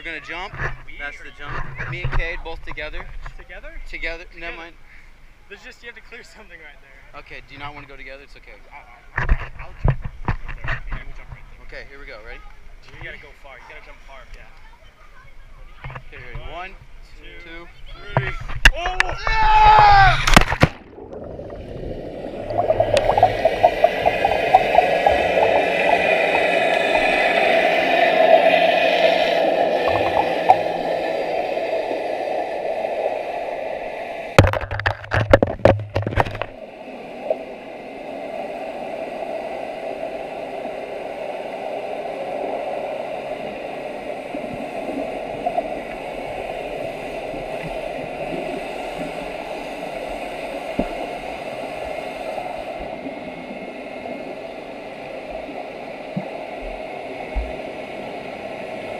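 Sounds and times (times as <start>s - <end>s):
muffled underwater wash and hum: 19.4s - 58.9s.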